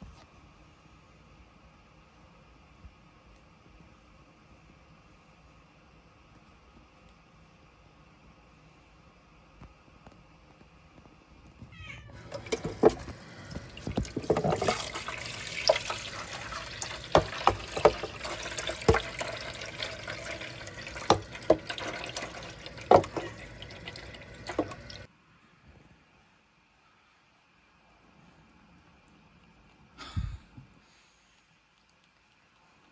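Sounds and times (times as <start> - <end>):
running water: 12.1 - 25.1.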